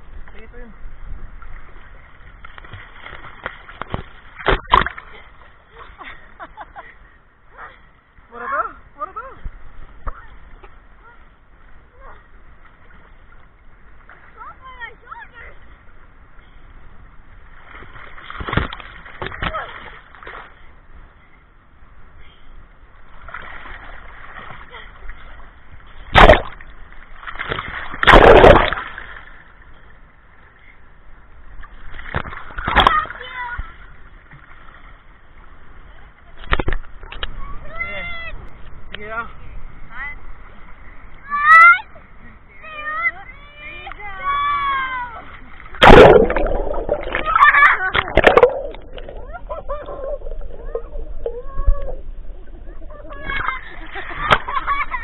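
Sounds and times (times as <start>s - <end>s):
sea water splashing: 1.2s - 6.3s, 9.2s - 21.0s, 22.9s - 30.6s, 31.4s - 37.3s, 43.6s - 55.0s.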